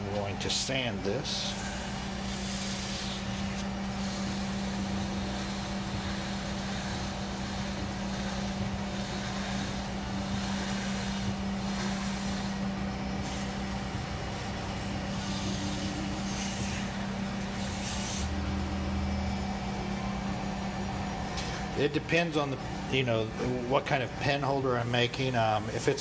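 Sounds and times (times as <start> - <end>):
wood lathe motor hum: 0.0 - 26.0
sandpaper hissing on wood: 1.5 - 13.7, 15.1 - 18.3.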